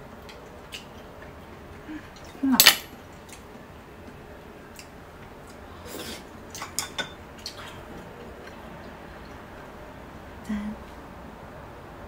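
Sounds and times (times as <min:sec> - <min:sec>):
chopsticks and glass clinking: 0:06.6 - 0:07.2.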